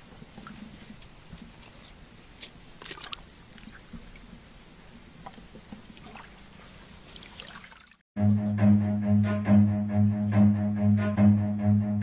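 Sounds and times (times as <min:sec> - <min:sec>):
hands splashing in muddy water: 0:02.4 - 0:03.9.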